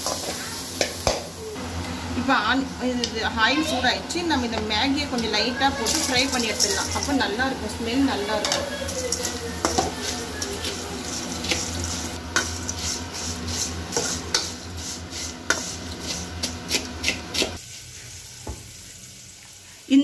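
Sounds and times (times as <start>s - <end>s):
light sizzle: 0.0s - 20.0s
metal spatula scraping pan: 5.2s - 17.6s.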